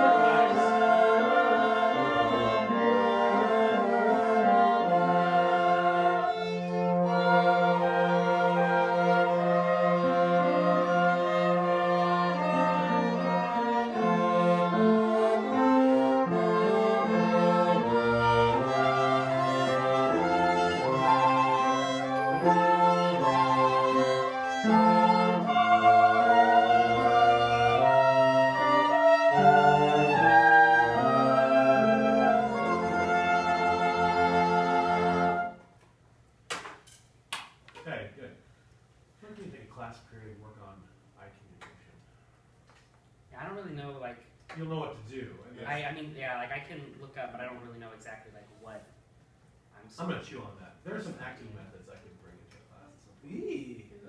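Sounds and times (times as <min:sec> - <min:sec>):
small ensemble of strings and brass: 0:00.0 - 0:35.8.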